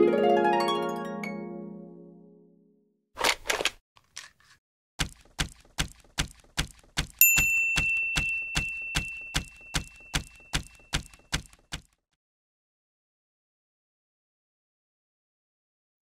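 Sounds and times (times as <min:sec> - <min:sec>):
bell ding: 0:07.2 - 0:11.2.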